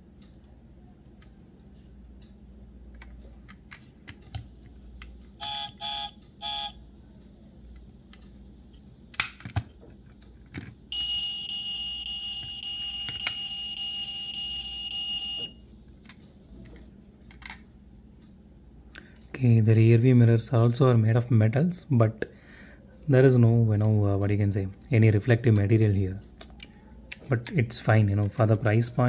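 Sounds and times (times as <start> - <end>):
long steady electronic tone: 5.4 - 7.2, 10.9 - 15.7
short electronic beeps: 10.9 - 15.6.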